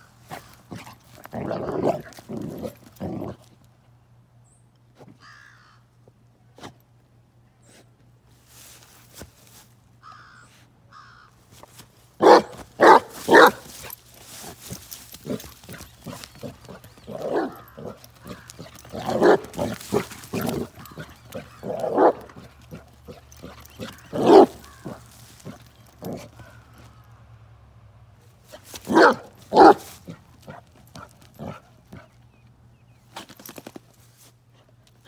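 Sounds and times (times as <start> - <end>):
puppy barking: 12.2 - 13.9, 15.2 - 26.6, 28.9 - 32.1.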